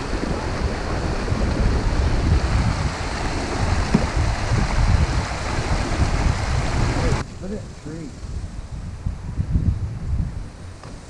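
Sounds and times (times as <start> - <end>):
river water rushing over riffles: 0.0 - 8.8
wind buffeting microphone: 0.0 - 11.0.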